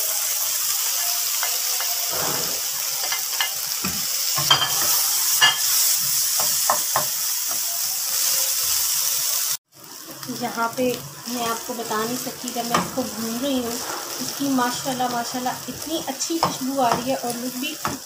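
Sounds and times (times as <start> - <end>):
potatoes sizzling in oil: 0.0 - 18.0
spoon scraping pan: 1.4 - 7.1.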